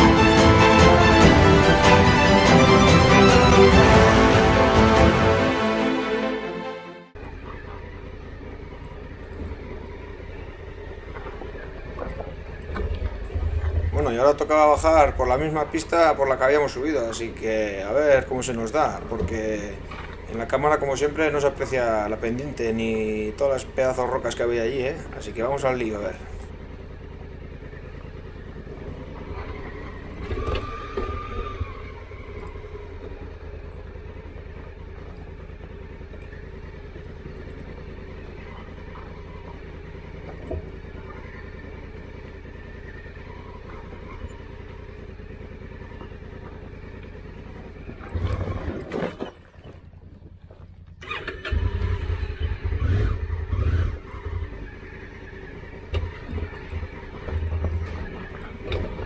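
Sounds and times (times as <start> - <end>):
motorcycle engine running: 0.0 - 5.3, 7.1 - 59.0
heavy low rumbling and knocks: 11.0 - 16.2.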